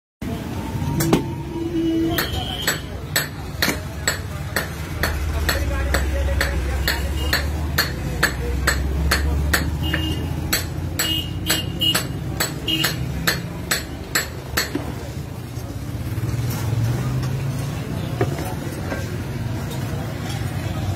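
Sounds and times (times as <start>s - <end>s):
wooden stick knocking on metal pots: 2.1s - 15.0s, 18.2s - 19.3s.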